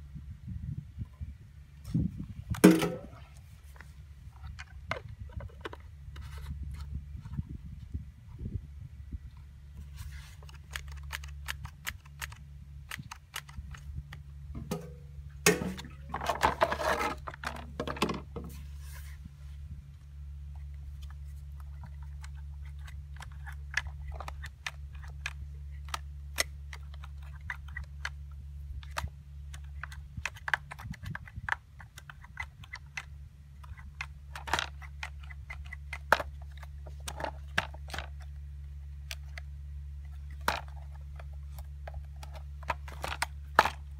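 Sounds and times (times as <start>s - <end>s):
steady low hum: 0.0s - 43.9s
hands handling plastic housing: 9.8s - 19.2s, 20.6s - 38.4s, 39.0s - 43.9s
plastic rattling: 40.1s - 43.9s.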